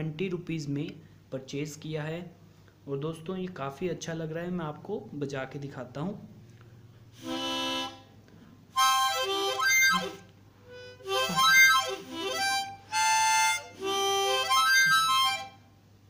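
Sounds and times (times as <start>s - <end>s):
harmonica notes and chords: 7.2s - 15.8s.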